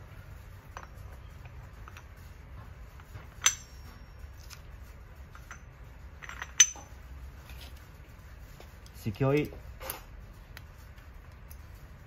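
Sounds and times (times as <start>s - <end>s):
metal-on-metal clinks: 0.6s - 2.3s, 3.0s - 4.6s, 5.2s - 7.0s.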